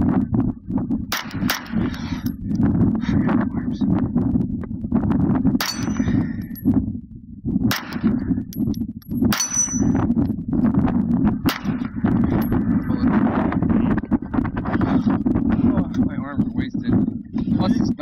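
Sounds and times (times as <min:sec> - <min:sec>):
steady low rumble: 0:00.0 - 0:18.0
steel plates ringing: 0:05.6 - 0:06.6, 0:09.3 - 0:10.0.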